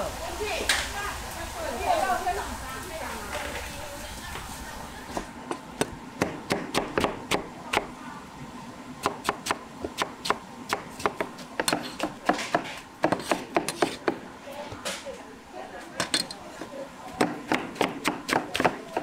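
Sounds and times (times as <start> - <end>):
cleaver chopping on wooden block: 5.8 - 7.9, 9.0 - 14.2, 17.2 - 19.0.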